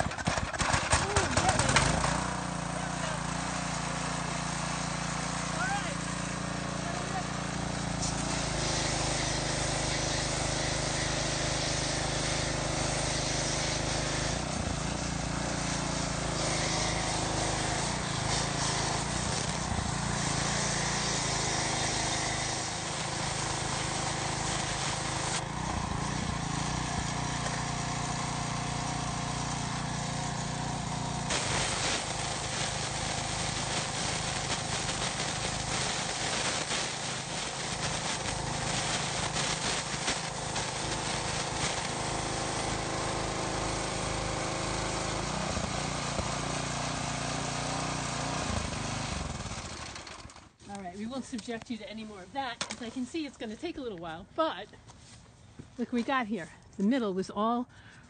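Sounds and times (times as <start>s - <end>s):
pressure washer engine running: 0.0s - 55.0s
water jet spray hiss: 2.8s - 26.2s, 27.0s - 47.9s.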